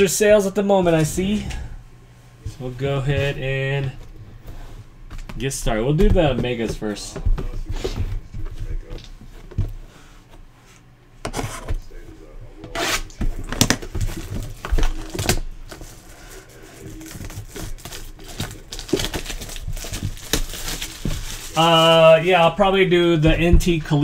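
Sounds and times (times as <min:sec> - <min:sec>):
shrink wrap tearing and crinkling: 0:12.8 - 0:22.1.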